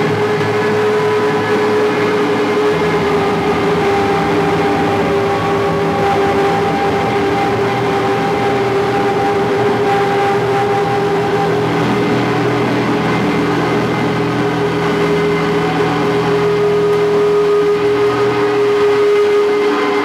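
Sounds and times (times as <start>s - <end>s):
electric guitar drone: 0.0s - 20.0s.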